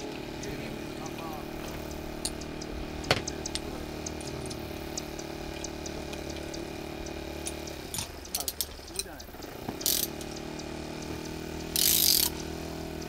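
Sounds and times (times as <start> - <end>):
steady machine drone: 0.0 - 13.0
metal tool clicks: 1.6 - 4.6, 7.4 - 12.7.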